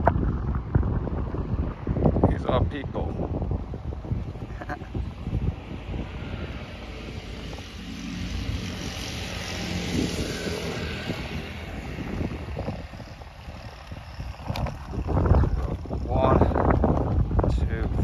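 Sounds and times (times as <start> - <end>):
wind buffeting microphone: 0.0 - 18.0
vehicle passing by: 4.6 - 16.6.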